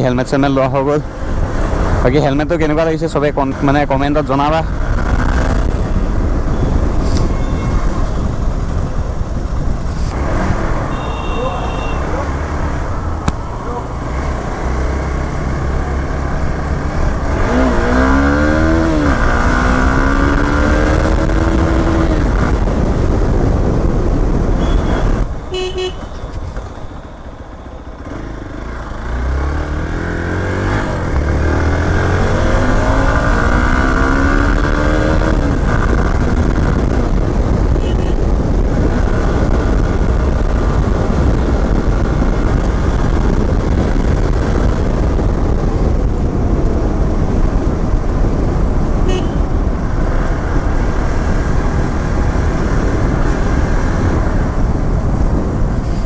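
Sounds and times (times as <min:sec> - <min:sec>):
wind rumble on microphone: 0:00.0 - 0:11.0, 0:12.0 - 0:25.5, 0:29.6 - 0:56.0
motorcycle engine accelerating: 0:12.0 - 0:25.0, 0:27.8 - 0:55.6.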